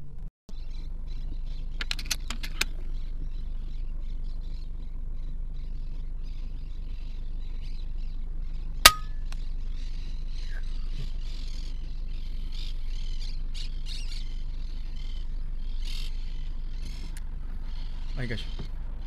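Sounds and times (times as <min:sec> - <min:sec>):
low rumble of handling noise: 0:00.0 - 0:19.0.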